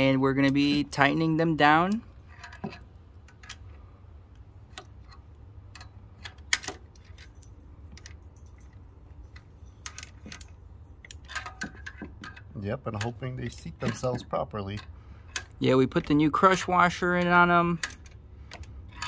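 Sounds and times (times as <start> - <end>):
low steady hum: 0.0 - 19.0
metallic clinks of hand tools: 7.0 - 12.4.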